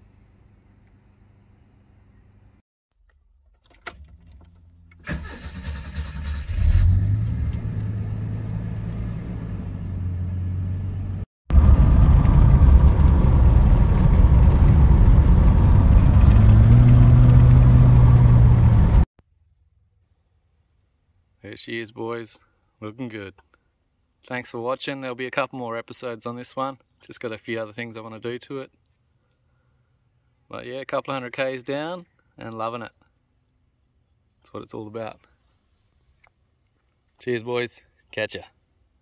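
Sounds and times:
engine and road noise: 0.0s - 19.1s
car engine starting: 4.1s - 19.1s.

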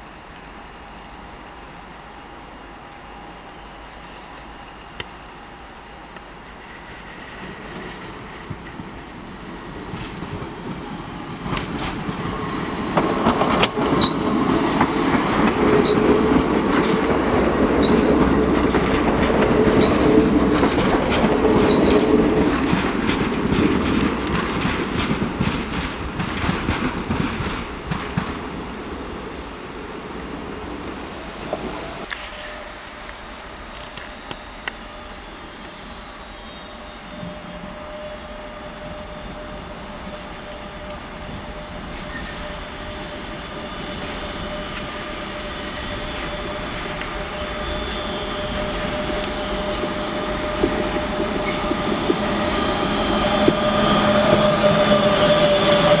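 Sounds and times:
train rolling past: 0.0s - 56.0s
high-pitched wheel squeaks: 21.6s - 22.0s.

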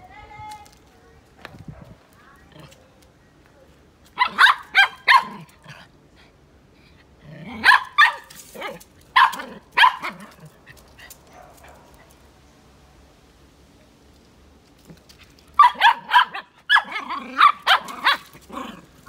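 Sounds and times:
small dog barking: 4.2s - 5.5s, 7.6s - 10.4s, 15.6s - 18.4s.

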